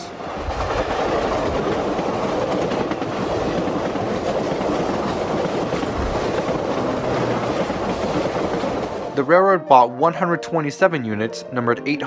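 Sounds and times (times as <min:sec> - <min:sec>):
train wheels rushing on rails: 0:00.0 - 0:09.2.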